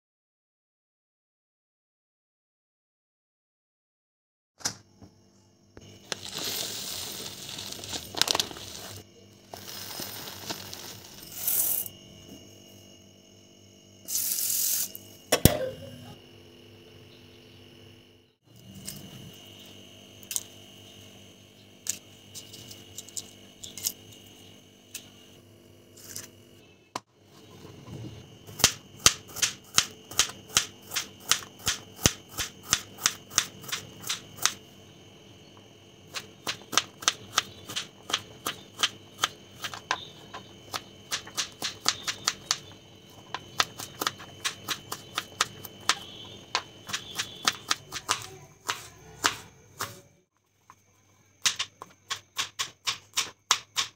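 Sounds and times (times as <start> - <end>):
knife chopping on plastic board: 43.3 - 50.0, 51.4 - 53.9.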